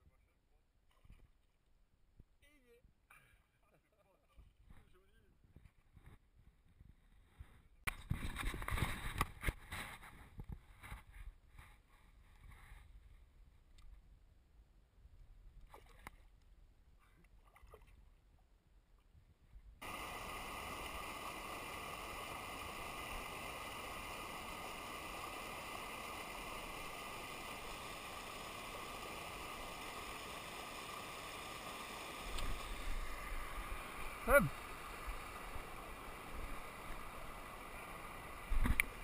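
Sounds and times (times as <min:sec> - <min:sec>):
small water splashes and ticks: 0:00.8 - 0:01.8, 0:15.5 - 0:18.3, 0:32.2 - 0:32.9, 0:38.4 - 0:39.0
rushing white water: 0:19.8 - 0:39.0.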